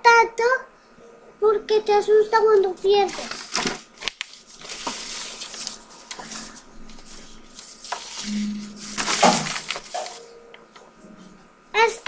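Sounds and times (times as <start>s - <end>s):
paper rustling: 2.6s - 10.4s
short low hum: 8.2s - 11.6s.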